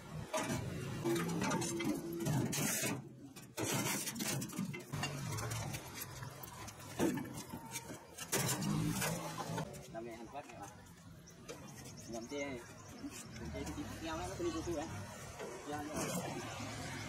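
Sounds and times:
metal parts clanking on sheet metal: 0.3 - 6.0.

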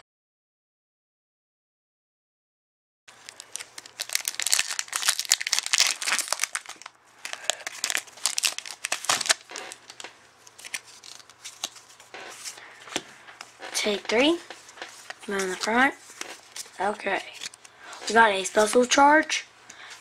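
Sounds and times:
foil wrapper crinkling and tearing: 3.1 - 12.6
cards rustling: 3.1 - 18.9.

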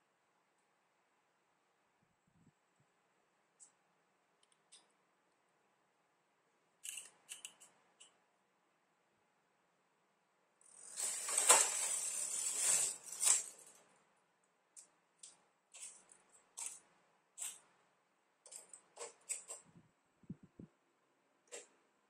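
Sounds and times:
knitting machine carriage sliding: 10.7 - 13.8.

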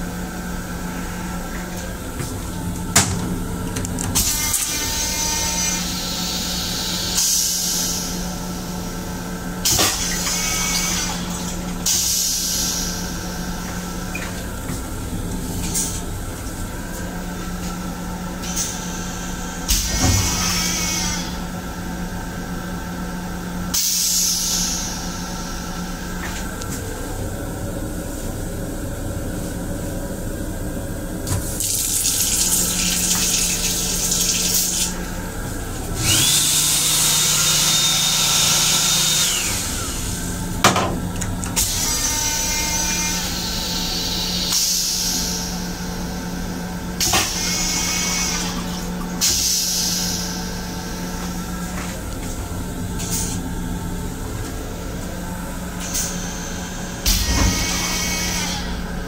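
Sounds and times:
railcar low hum: 21.4 - 31.6, 50.2 - 57.1
high motor whine: 32.6 - 46.4.

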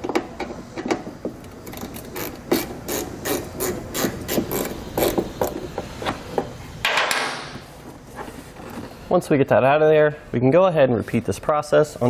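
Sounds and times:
ratchet clicking: 1.6 - 5.2.

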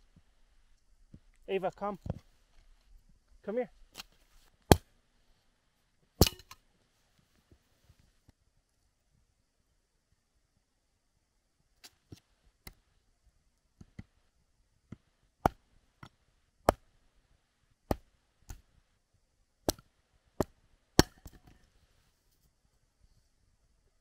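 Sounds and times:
hatchet chopping wood: 4.7 - 4.9, 6.2 - 6.6, 14.9 - 16.9, 17.9 - 18.6, 19.7 - 21.5.

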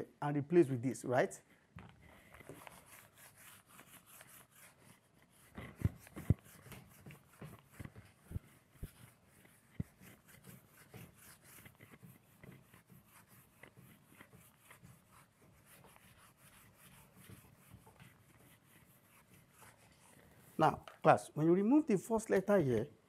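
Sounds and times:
eraser rubbing whiteboard: 2.4 - 20.8.

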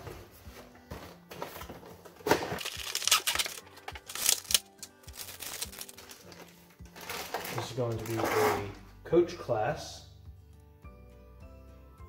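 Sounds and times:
faint background music: 0.0 - 12.0
plastic packaging crinkling: 2.6 - 8.7.

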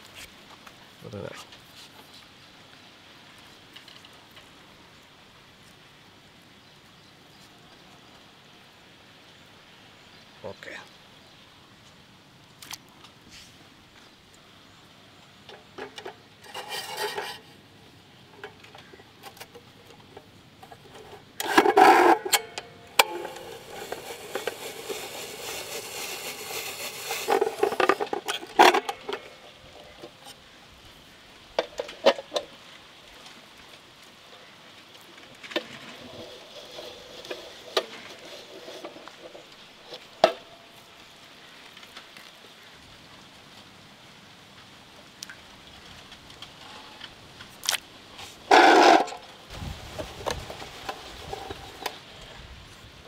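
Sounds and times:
spiral cutter scraping potato: 23.0 - 28.6.

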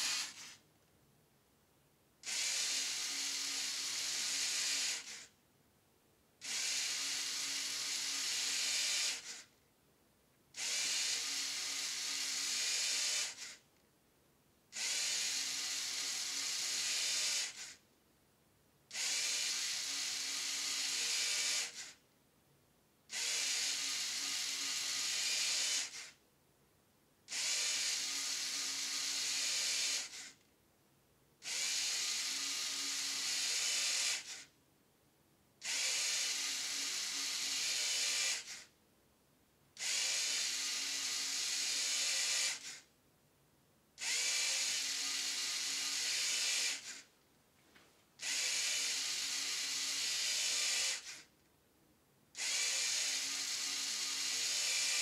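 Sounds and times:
toy motors whirring through gears: 0.0 - 0.6, 2.2 - 5.4, 6.4 - 9.5, 10.6 - 13.6, 14.7 - 17.8, 18.9 - 22.0, 23.1 - 26.2, 27.3 - 30.4, 31.4 - 34.5, 35.6 - 38.7, 39.8 - 42.9, 44.0 - 47.1, 48.2 - 51.3, 52.4 - 55.0.

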